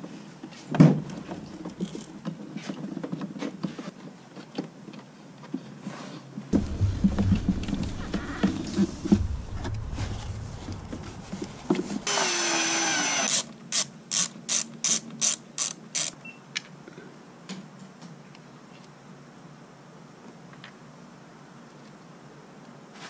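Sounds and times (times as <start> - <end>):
ratchet wrench clicks: 13.3 - 16.2.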